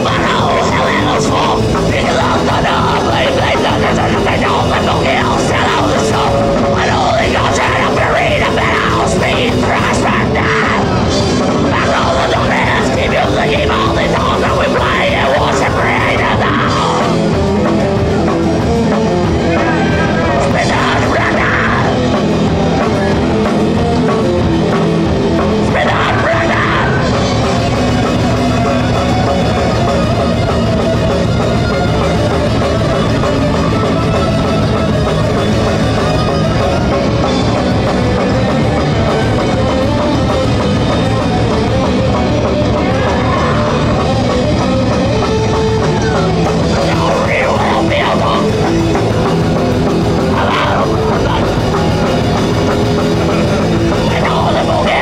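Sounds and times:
distorted electric guitar: 0.0 - 55.0
drum kit: 0.0 - 55.0.

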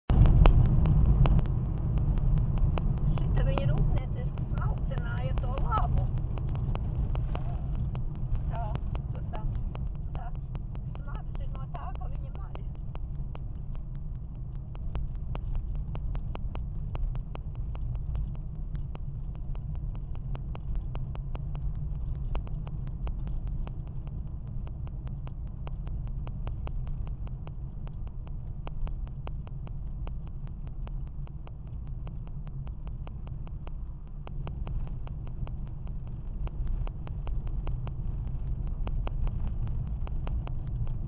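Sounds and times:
engine and tyre rumble in car: 0.1 - 41.0
faint sharp ticks: 0.1 - 41.0.

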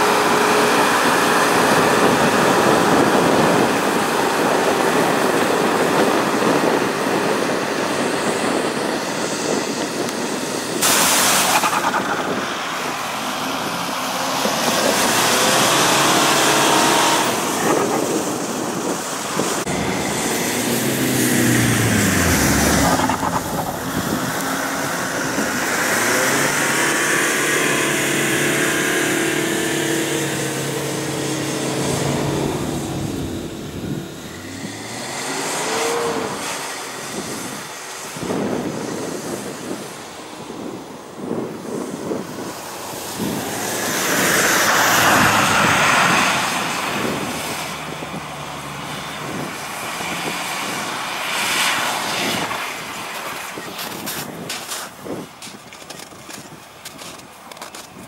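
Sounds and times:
tyres spinning in wet snow: 10.8 - 38.2, 42.5 - 58.0
suv engine working under load: 10.8 - 39.4.

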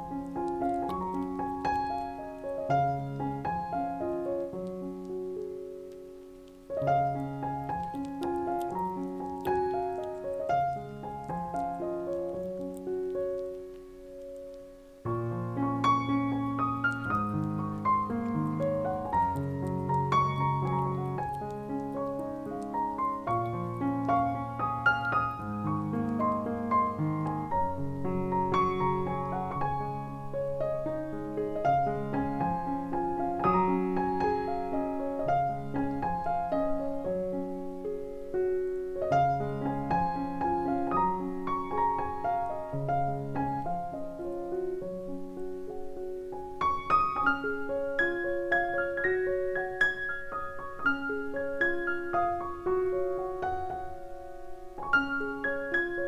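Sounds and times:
piano melody: 0.0 - 56.0.

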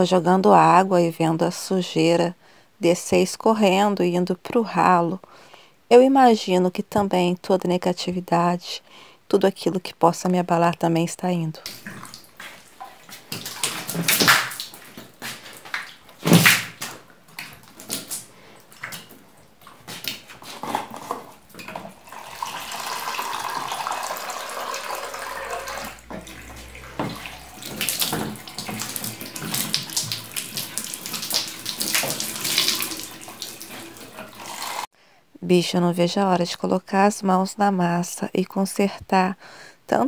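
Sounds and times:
water running: 11.5 - 34.9
water splashing on tiles: 11.6 - 34.9.

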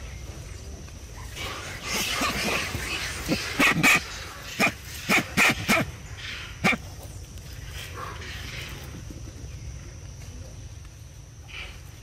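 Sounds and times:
animal yelping: 1.2 - 5.9.

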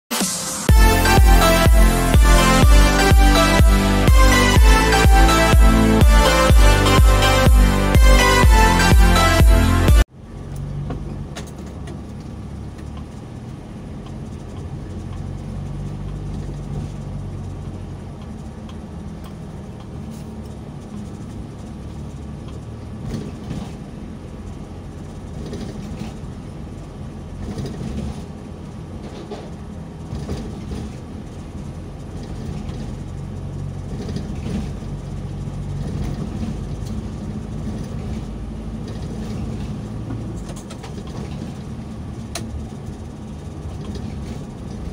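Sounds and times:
engine hum: 0.1 - 44.9
road noise on wet pavement: 10.1 - 44.9.

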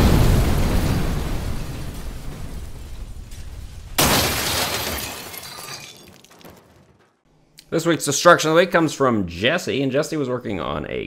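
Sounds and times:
explosion rumble: 0.0 - 4.4
glass shattering: 4.0 - 7.0.

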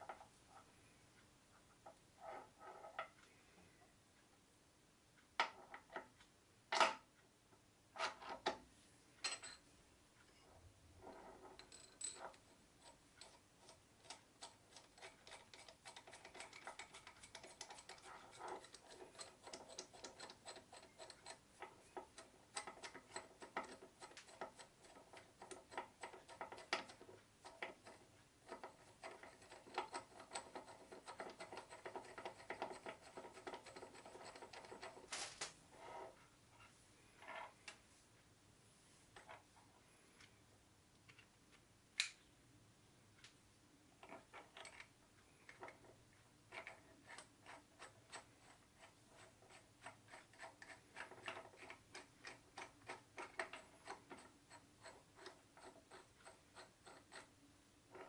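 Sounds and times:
light ticking of threaded parts: 9.2 - 35.1, 43.1 - 58.0.

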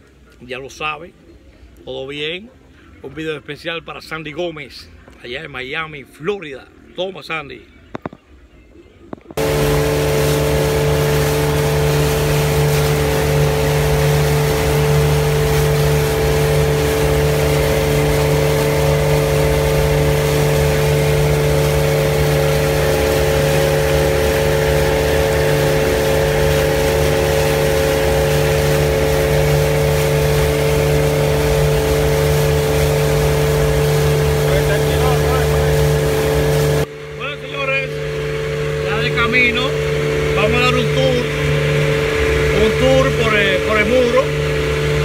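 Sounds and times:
outboard motor running: 9.2 - 45.0.

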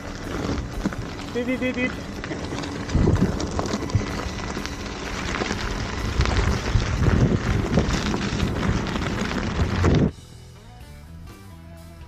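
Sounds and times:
tyre rolling over stony trail: 0.0 - 10.1
wind on microphone: 2.2 - 10.1.

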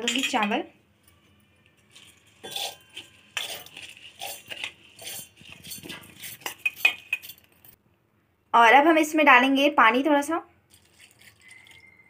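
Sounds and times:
steel spoon clinking and scraping: 0.0 - 7.8, 10.7 - 12.0.

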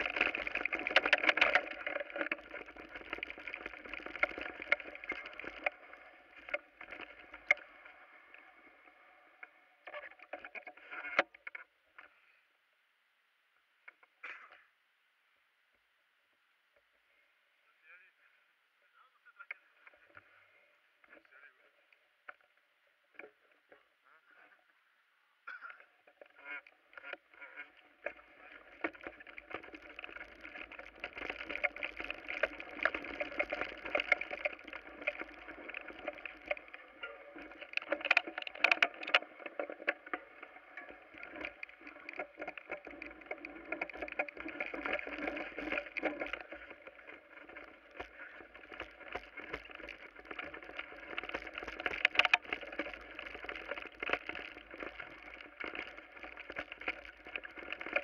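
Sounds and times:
tyre noise on rough ground: 0.0 - 7.7, 26.8 - 58.0
bicycle rattling downhill: 0.0 - 11.6, 25.5 - 58.0.

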